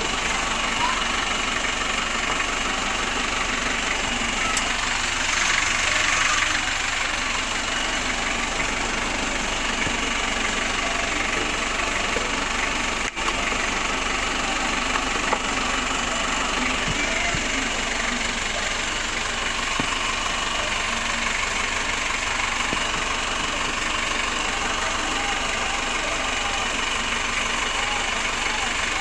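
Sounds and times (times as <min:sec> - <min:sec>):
van engine idling: 0:00.0 - 0:29.0.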